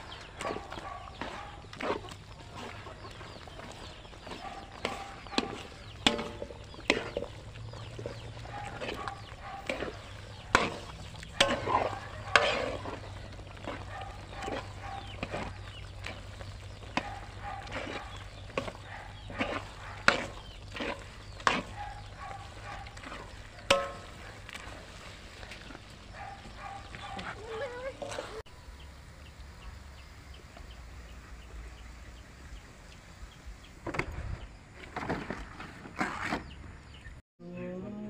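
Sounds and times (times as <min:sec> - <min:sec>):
chickens clucking: 0:00.0 - 0:28.5
metal ladle scraping a pan: 0:00.4 - 0:28.4
ladle knocking against pan: 0:23.7 - 0:24.2.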